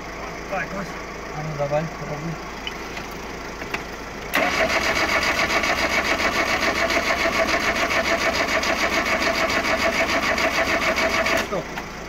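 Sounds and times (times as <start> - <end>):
starter motor cranking engine: 2.6 - 11.9.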